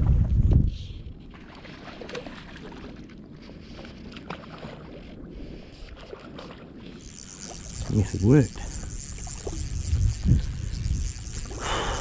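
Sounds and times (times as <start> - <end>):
low steady rustle: 6.8 - 12.0
fly line clicks: 7.0 - 12.0.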